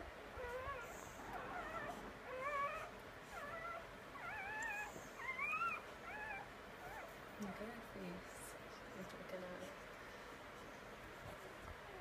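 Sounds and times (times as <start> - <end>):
dog whimpering: 0.4 - 7.7.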